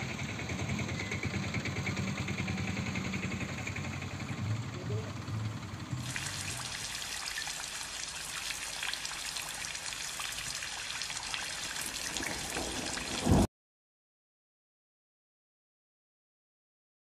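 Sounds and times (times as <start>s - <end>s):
rain hissing: 6.0s - 13.5s.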